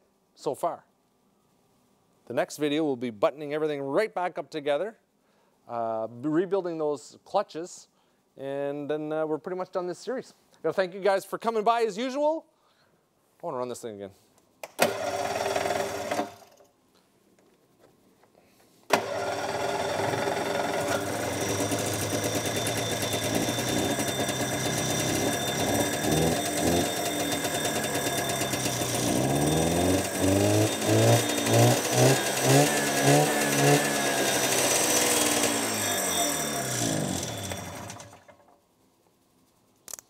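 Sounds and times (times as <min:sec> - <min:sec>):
snowmobile engine running: 0:20.9 - 0:38.1.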